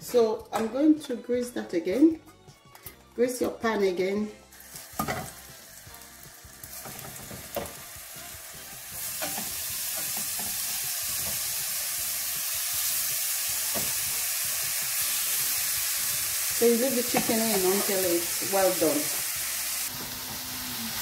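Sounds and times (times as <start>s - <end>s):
chicken frying in a pan: 4.6s - 21.0s.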